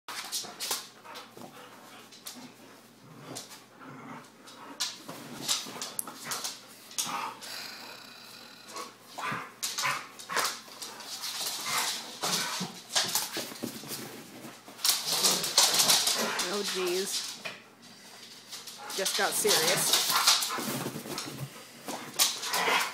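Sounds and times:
dogs scuffling: 0:08.7 - 0:22.9.

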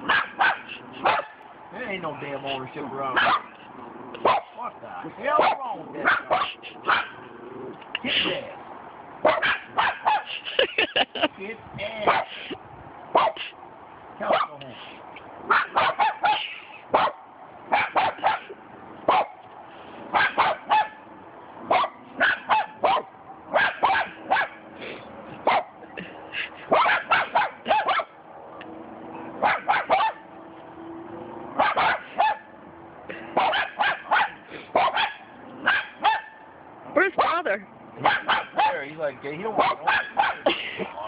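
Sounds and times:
small dog barking: 0:00.0 - 0:01.4, 0:03.2 - 0:03.5, 0:04.2 - 0:04.6, 0:05.3 - 0:07.2, 0:09.2 - 0:10.3, 0:12.1 - 0:12.4, 0:13.1 - 0:13.4, 0:14.3 - 0:14.6, 0:15.5 - 0:18.5, 0:19.1 - 0:19.4, 0:20.1 - 0:21.0, 0:21.7 - 0:24.6, 0:25.5 - 0:25.8, 0:26.7 - 0:28.2, 0:29.4 - 0:30.2, 0:31.6 - 0:32.5, 0:33.4 - 0:36.5, 0:37.2 - 0:37.4, 0:38.0 - 0:38.8, 0:39.6 - 0:40.5.

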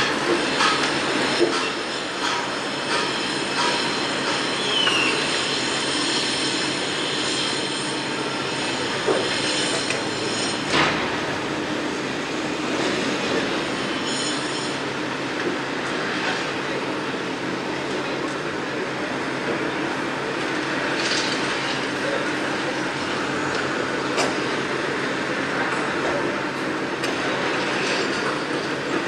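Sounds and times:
steady mechanical rumble: 0:08.0 - 0:29.0
high metallic squealing: 0:13.8 - 0:14.8.

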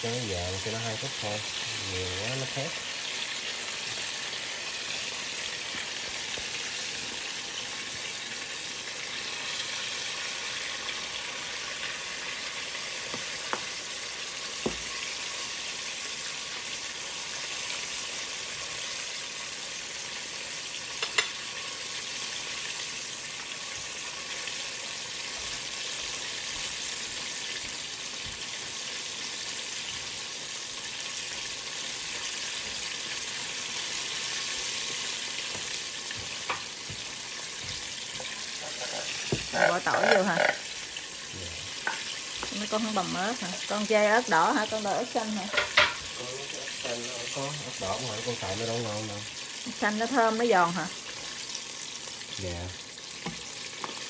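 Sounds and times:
wings sizzling in hot oil: 0:00.0 - 0:54.0.

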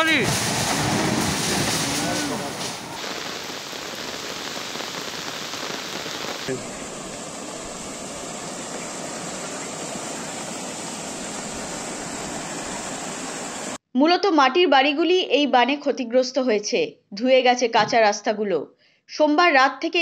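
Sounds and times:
fast-flowing floodwater: 0:00.0 - 0:03.4, 0:06.4 - 0:13.8
heavy rain: 0:00.0 - 0:13.8.

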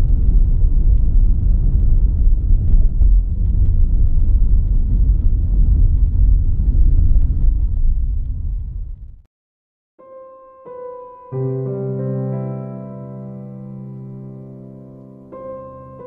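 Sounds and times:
car driving on road rumble: 0:00.0 - 0:09.2.

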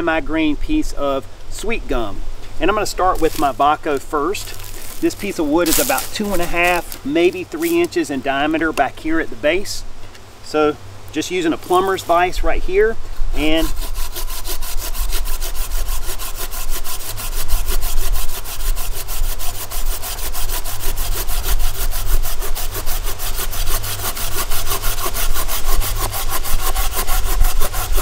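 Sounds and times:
folding saw cutting branch: 0:02.6 - 0:08.2, 0:13.4 - 0:28.0.

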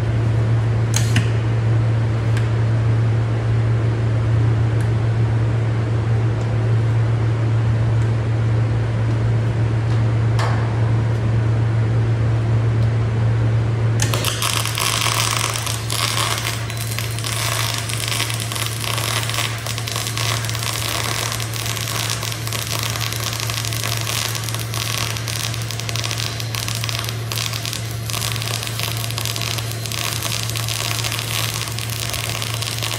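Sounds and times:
low hum: 0:00.0 - 0:32.9
welding arc crackling sizzle: 0:14.0 - 0:32.9.

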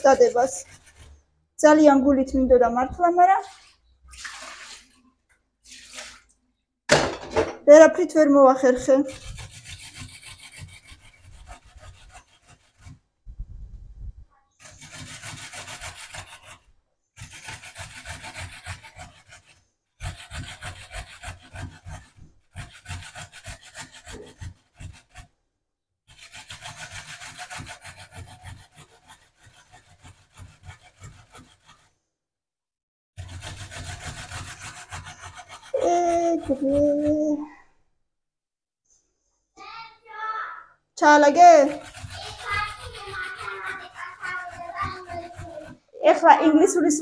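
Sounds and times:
child's voice: 0:00.0 - 0:00.6, 0:35.8 - 0:37.6, 0:39.6 - 0:47.0
vegetable grating by hand: 0:00.0 - 0:05.0, 0:07.9 - 0:13.0, 0:14.6 - 0:25.3, 0:26.1 - 0:32.0, 0:33.2 - 0:37.5, 0:41.0 - 0:47.0.

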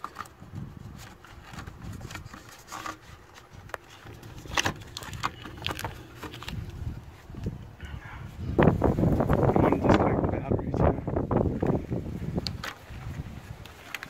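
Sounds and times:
handling rustle: 0:00.0 - 0:07.7, 0:11.5 - 0:14.0.

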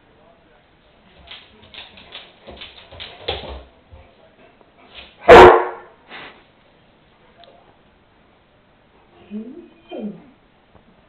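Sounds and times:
paws tapping on laminate floor: 0:01.1 - 0:04.1
dog barking: 0:05.2 - 0:06.0.

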